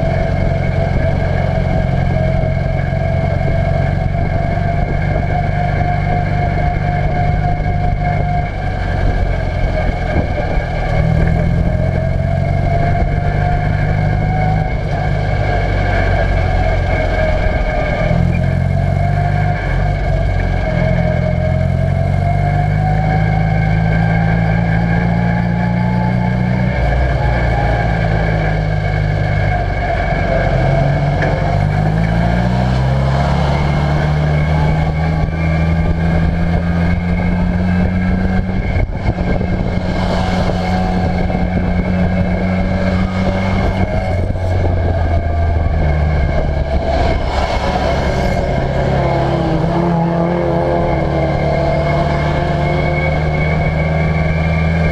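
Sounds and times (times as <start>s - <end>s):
high whine: 0.0s - 54.9s
race car engine revving: 0.0s - 54.9s.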